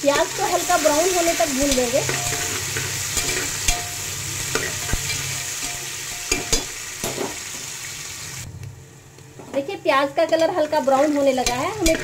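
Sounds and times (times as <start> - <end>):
metal spatula scraping pot: 0.0 - 7.4, 11.4 - 12.0
onions sizzling in oil: 0.0 - 8.5, 9.8 - 12.0.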